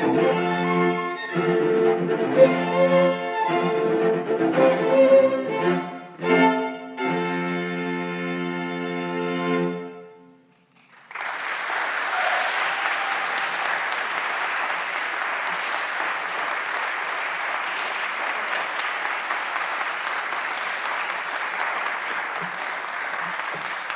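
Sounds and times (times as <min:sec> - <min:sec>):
string quartet chord echo: 0:00.0 - 0:10.4
audience applause: 0:10.8 - 0:23.9.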